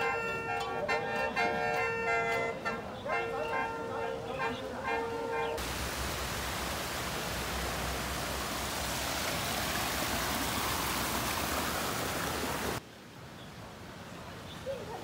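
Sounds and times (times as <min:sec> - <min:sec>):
water rushing over rocks: 0:05.6 - 0:14.3.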